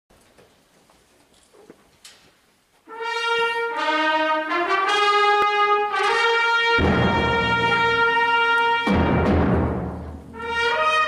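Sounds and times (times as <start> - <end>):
wind band playing: 2.8 - 11.0
brass fanfare: 2.9 - 11.0.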